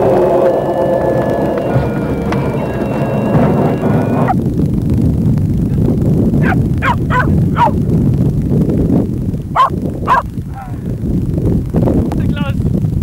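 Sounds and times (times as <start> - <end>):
steady low rumble: 0.0 - 13.0
dog barking: 6.4 - 7.8, 9.6 - 10.2.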